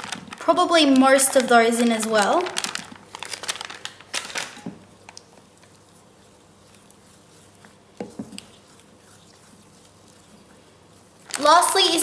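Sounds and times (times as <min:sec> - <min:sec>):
spoon stirring melted chocolate: 0:05.4 - 0:12.0.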